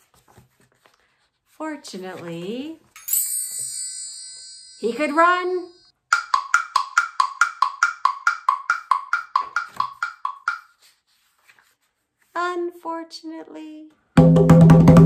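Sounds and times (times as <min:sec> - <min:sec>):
hollow percussion knocks: 0:06.1 - 0:10.6, 0:14.2 - 0:15.0.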